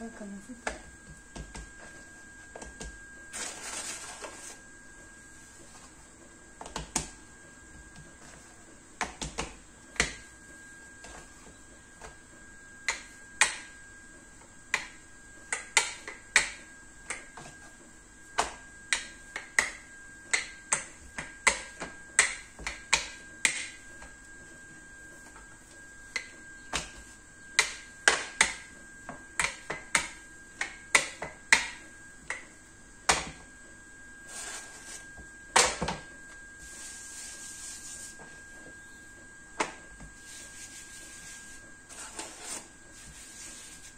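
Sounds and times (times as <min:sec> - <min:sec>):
hands rubbing dough: 0:34.2 - 0:35.2, 0:36.6 - 0:38.7, 0:40.1 - 0:43.9.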